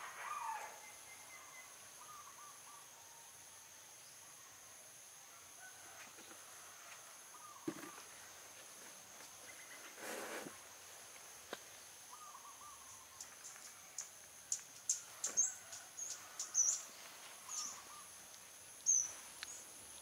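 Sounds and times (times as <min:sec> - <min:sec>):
bird calling: 0:00.0 - 0:02.9, 0:07.3 - 0:08.3, 0:12.1 - 0:18.2, 0:18.8 - 0:19.7
short rustle: 0:09.8 - 0:10.6.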